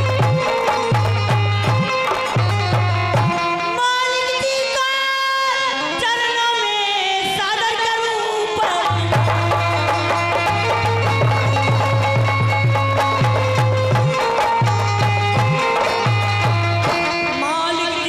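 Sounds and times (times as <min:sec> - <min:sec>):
hand drum beating: 0:00.0 - 0:03.4, 0:08.9 - 0:17.1.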